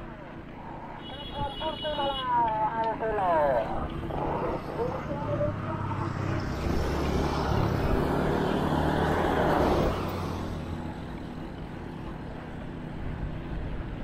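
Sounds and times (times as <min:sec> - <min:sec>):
road noise: 0:00.0 - 0:14.0
vehicle engine: 0:00.0 - 0:14.0.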